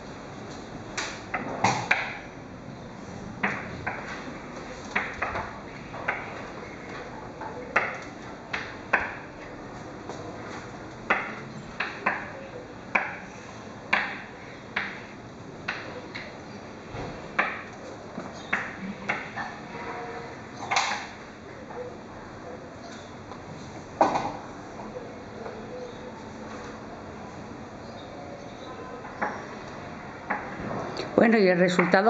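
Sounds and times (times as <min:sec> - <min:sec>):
low room noise: 0:00.0 - 0:32.0
chalk tapping on chalkboard: 0:13.9 - 0:15.1.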